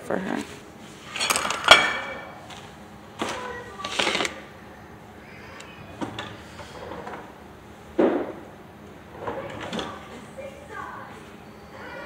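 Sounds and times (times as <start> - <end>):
plate scraping and rustling: 0.9 - 2.7, 3.8 - 4.4.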